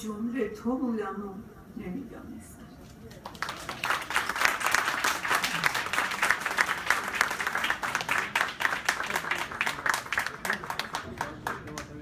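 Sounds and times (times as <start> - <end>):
crowd applauding: 3.2 - 12.0.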